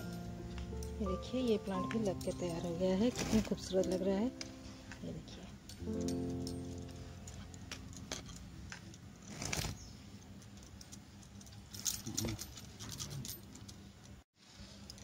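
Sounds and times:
bangles clinking: 0.0s - 9.2s
scraping rustle: 3.0s - 3.9s, 8.2s - 13.7s.

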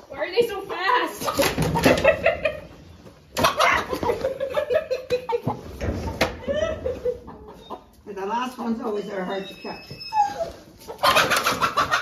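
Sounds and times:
hens clucking and squawking: 0.4s - 12.0s.

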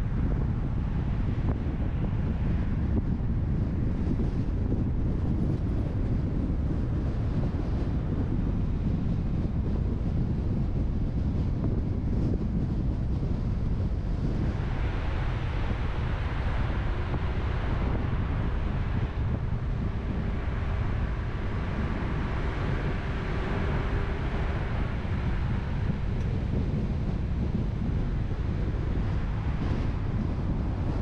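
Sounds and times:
faint steady hum: 0.0s - 31.0s
car road noise: 12.7s - 31.0s.

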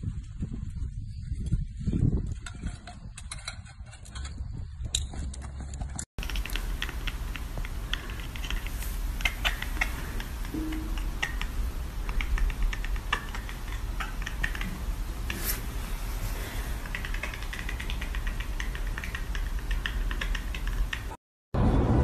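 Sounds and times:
cat chattering clicks and chirps: 6.2s - 15.4s, 16.8s - 21.2s
low steady hum: 6.2s - 22.0s.

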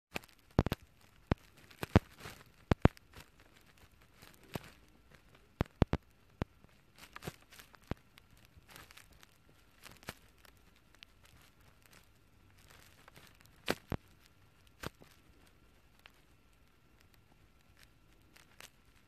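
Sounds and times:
soft rustling: 0.1s - 19.0s.

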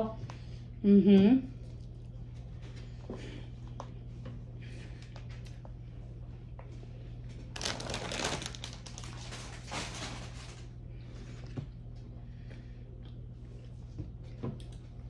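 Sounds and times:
steady low hum: 0.0s - 15.0s
crunching and chewing: 7.5s - 15.0s.

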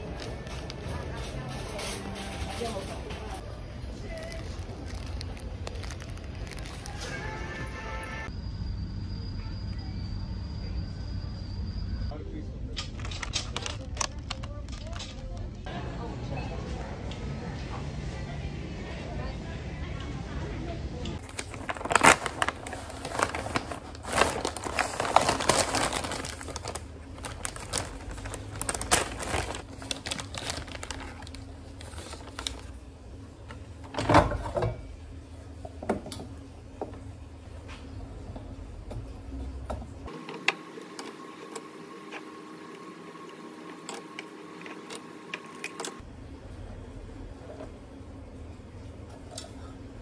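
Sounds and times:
plastic bag crinkling: 4.0s - 7.4s, 21.2s - 32.8s.

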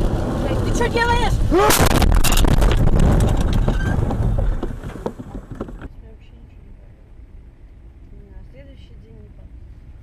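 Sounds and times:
clattering and rumbling: 0.0s - 6.0s
loud car collision: 1.6s - 5.1s.

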